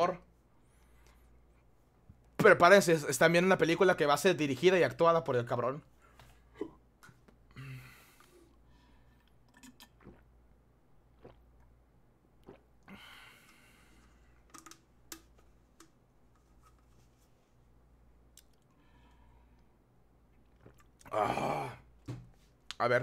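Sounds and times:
low steady hum: 0.0s - 23.0s
person drinking from plastic bottle: 9.2s - 10.4s, 11.1s - 11.7s, 12.4s - 14.8s, 20.5s - 22.1s.

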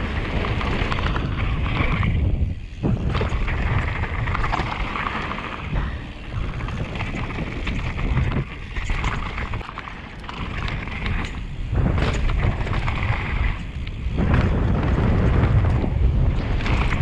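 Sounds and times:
bike clattering over bumps: 0.0s - 17.0s
wind rushing over microphone: 0.0s - 17.0s.

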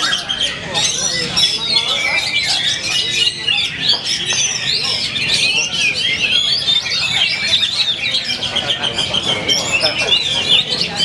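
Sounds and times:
birds singing in chorus: 0.0s - 11.0s.

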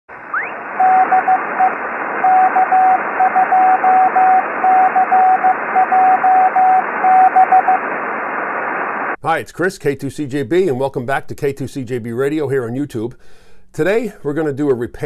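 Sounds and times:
receiver hiss: 0.1s - 9.2s
rising whistle: 0.3s - 7.9s
morse code tone: 0.4s - 7.8s.

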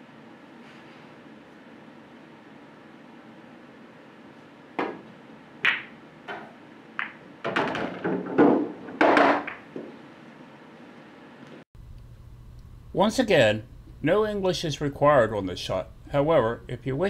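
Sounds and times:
cue striking ball: 4.8s - 10.0s
pool balls clicking: 4.8s - 10.0s
ball rattling down return: 5.7s - 9.8s.

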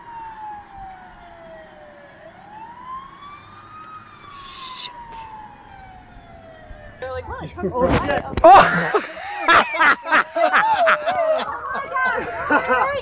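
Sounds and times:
siren wailing: 0.0s - 7.6s
short hiss: 4.2s - 5.3s.

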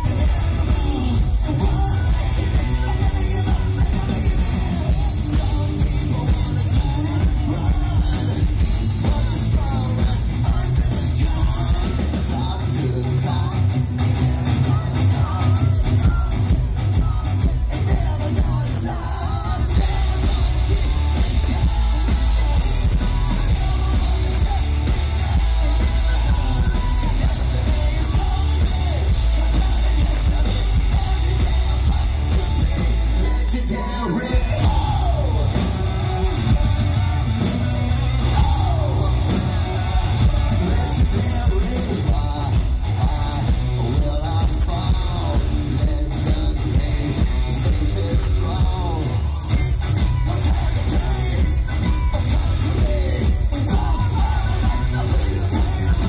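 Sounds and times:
live rock band playing: 0.0s - 56.0s
man singing and shouting: 0.0s - 56.0s.

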